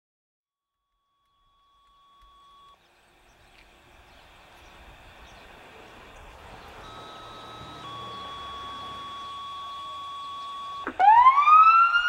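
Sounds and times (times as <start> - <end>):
outdoor background noise: 0.9 - 12.0
two-tone paging signal: 1.0 - 2.8, 6.8 - 11.0
steady tone: 3.9 - 11.0.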